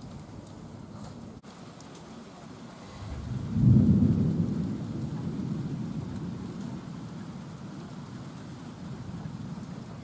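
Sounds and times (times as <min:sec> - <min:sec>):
steady rain: 0:00.0 - 0:10.0
thunder rumbling: 0:02.9 - 0:10.0.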